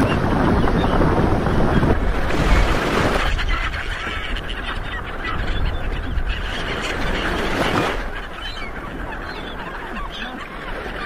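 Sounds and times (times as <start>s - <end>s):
wind rushing: 0.0s - 3.9s
gulls calling: 0.0s - 11.0s.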